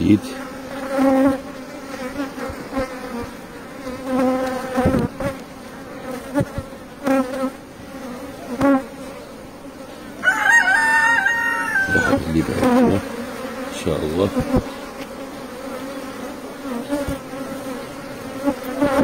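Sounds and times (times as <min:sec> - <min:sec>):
bees buzzing: 0:00.0 - 0:19.0.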